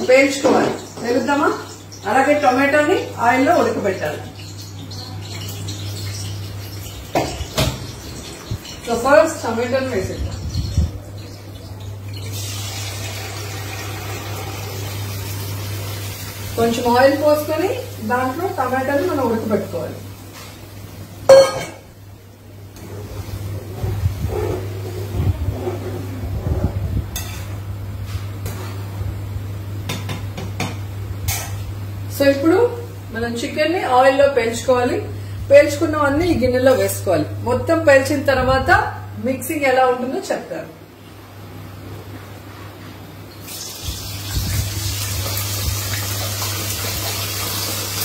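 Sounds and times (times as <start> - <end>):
chicken sizzling in hot oil: 0.0 - 20.2, 43.4 - 48.0.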